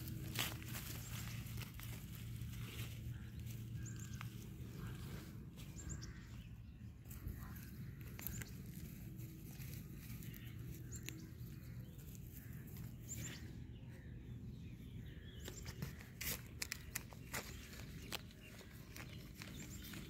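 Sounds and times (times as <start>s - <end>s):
low steady rumble: 0.0s - 15.4s.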